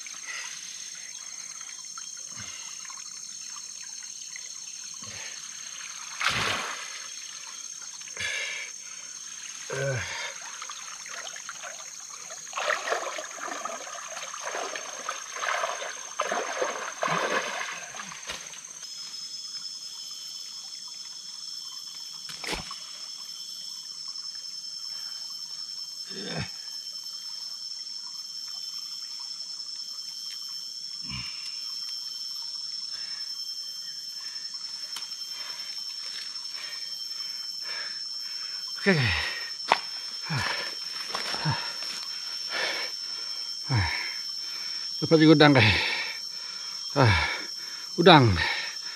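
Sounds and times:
river water splashing: 0:05.8 - 0:07.4, 0:10.4 - 0:18.7.

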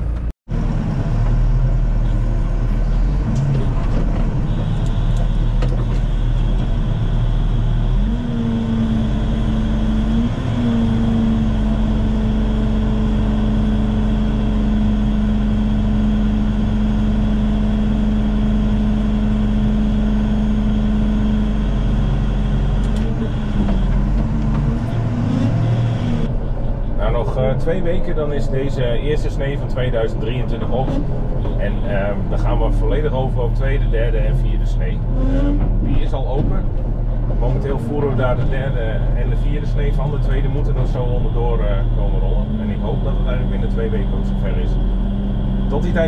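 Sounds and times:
tractor engine running: 0:00.0 - 0:46.0
steady hum rising in pitch: 0:06.8 - 0:27.3, 0:34.8 - 0:36.0.

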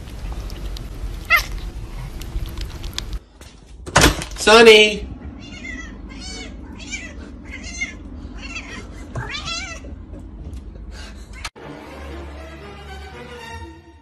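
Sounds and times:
cat meowing: 0:01.2 - 0:01.6, 0:05.4 - 0:09.9.

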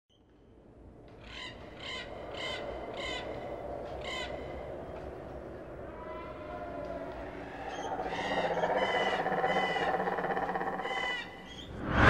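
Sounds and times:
steady background noise: 0:00.2 - 0:11.8
crow cawing: 0:01.2 - 0:04.6, 0:07.5 - 0:11.6.

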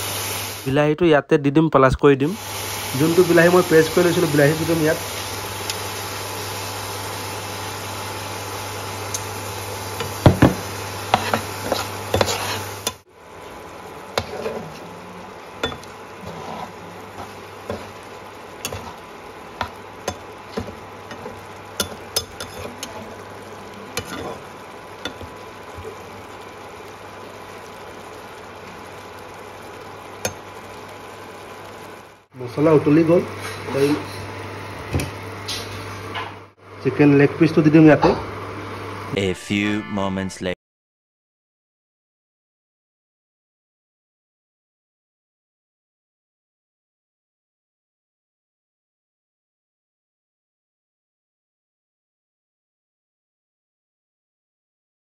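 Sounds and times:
onions sizzling in pan: 0:00.0 - 0:00.7, 0:02.4 - 0:36.8.

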